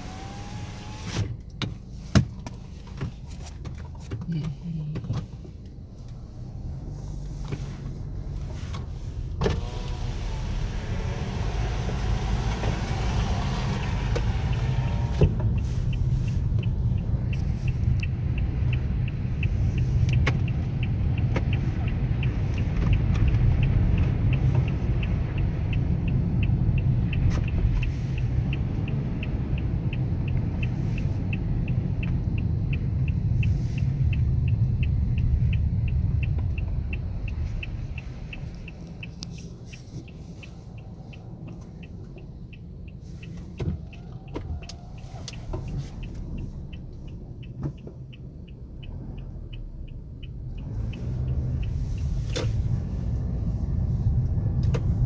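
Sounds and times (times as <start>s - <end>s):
car engine and tyres rumbling: 0.0s - 55.0s
regular ticking: 13.1s - 55.0s.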